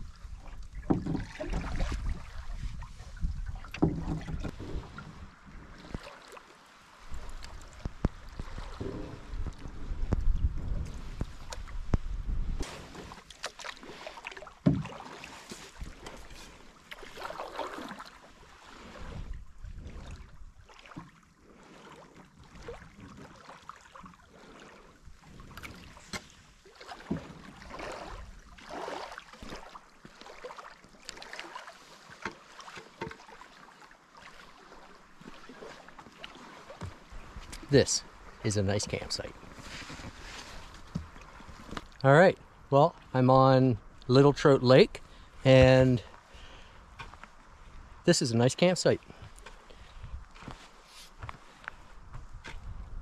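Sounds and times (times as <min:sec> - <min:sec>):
paddle swishing and splashing: 0:00.0 - 0:42.0, 0:49.0 - 0:53.0
knocks on canoe hull: 0:00.9 - 0:02.1, 0:03.7 - 0:04.8, 0:14.6 - 0:15.0.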